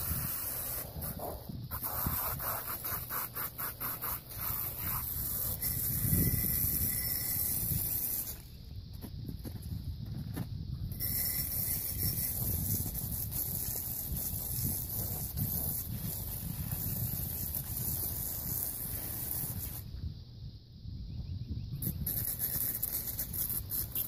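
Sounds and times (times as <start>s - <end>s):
hose nozzle spraying water: 0.0s - 8.5s
wind rumble on microphone: 0.0s - 24.0s.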